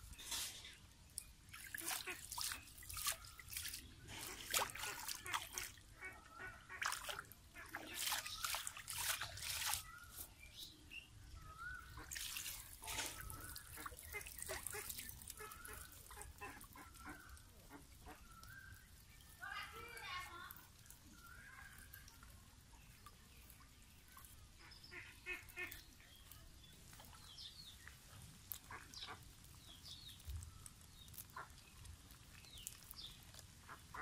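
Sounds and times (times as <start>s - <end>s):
muddy water splashing and trickling: 0.0s - 34.0s
fish trap dripping: 1.2s - 5.8s.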